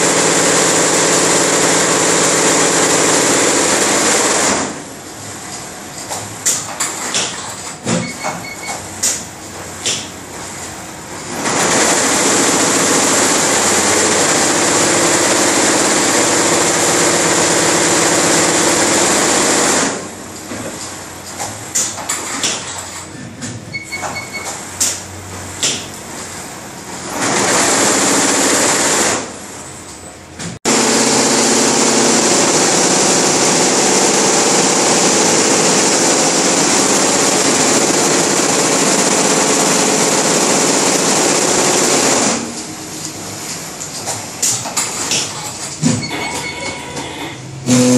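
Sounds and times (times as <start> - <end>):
short beeps: 23.8 - 24.5.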